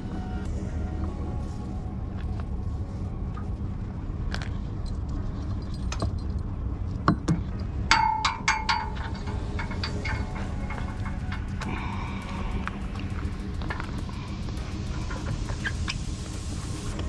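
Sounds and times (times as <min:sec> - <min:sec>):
low rumble: 0:00.0 - 0:17.0
ringing metallic clinks: 0:07.9 - 0:11.6.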